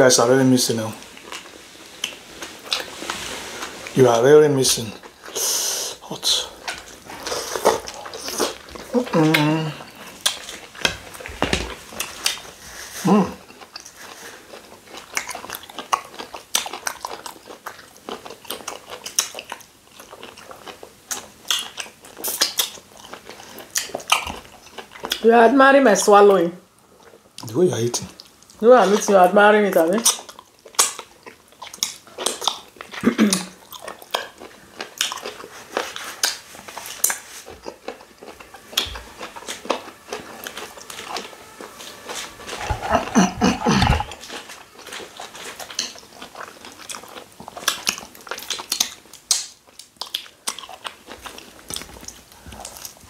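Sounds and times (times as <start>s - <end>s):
chewing: 0.6s - 25.2s, 26.8s - 29.1s, 29.7s - 53.0s
wet eating mouth sounds: 1.0s - 4.0s, 4.9s - 25.2s, 29.8s - 53.0s
people swallowing: 42.4s - 44.3s
mouth clicks and lip smacks: 47.6s - 51.0s.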